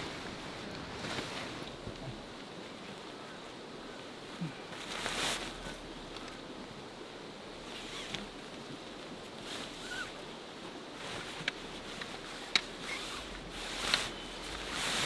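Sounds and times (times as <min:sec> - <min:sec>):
tent fabric rustling: 0:00.0 - 0:03.1, 0:04.2 - 0:06.7, 0:07.5 - 0:15.0
outdoor background hiss: 0:00.0 - 0:15.0
tent poles clicking: 0:07.6 - 0:08.7, 0:09.3 - 0:10.2, 0:11.0 - 0:15.0.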